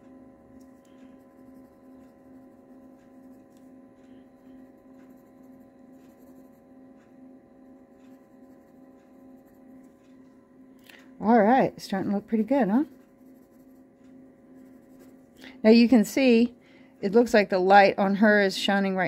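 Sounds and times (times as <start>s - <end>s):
low electrical hum: 0.0s - 19.0s
pencil scratching on card: 0.8s - 6.8s, 8.0s - 10.0s, 12.1s - 15.8s.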